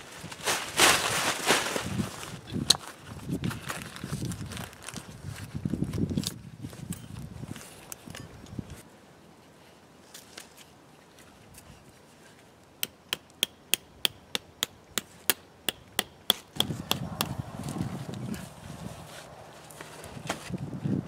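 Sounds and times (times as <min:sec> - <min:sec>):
rustling: 0:00.0 - 0:08.8, 0:17.4 - 0:21.0
blade chopping wooden stick: 0:12.8 - 0:17.4.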